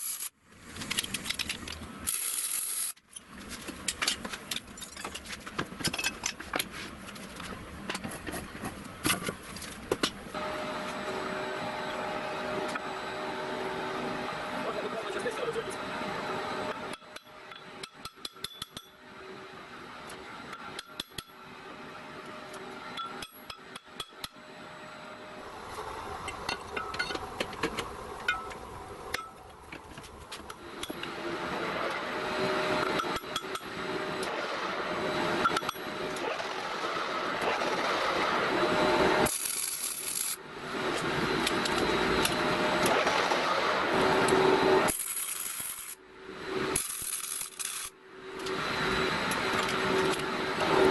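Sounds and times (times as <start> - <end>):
lathe cutting steel: 10.4 - 27.2, 30.6 - 50.9
welding crackle: 39.2 - 40.4, 44.9 - 46.0, 46.8 - 47.9.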